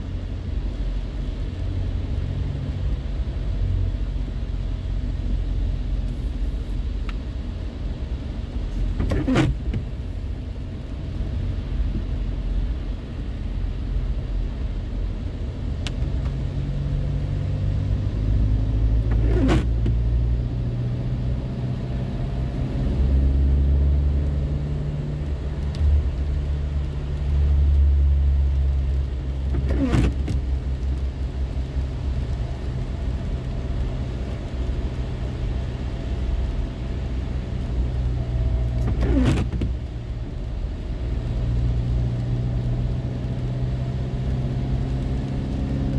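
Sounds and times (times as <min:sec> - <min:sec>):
car engine and tyre drone: 0:00.0 - 0:45.9
windscreen wiper squeak: 0:08.8 - 0:09.9, 0:19.0 - 0:20.1, 0:29.5 - 0:30.4, 0:38.4 - 0:39.8.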